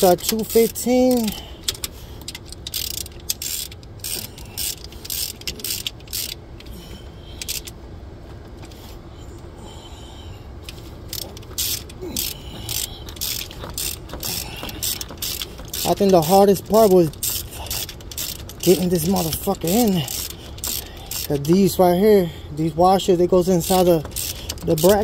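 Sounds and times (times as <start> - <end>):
socket ratchet clicking: 0.0 - 6.7, 7.4 - 7.8, 10.7 - 21.8, 23.3 - 25.0.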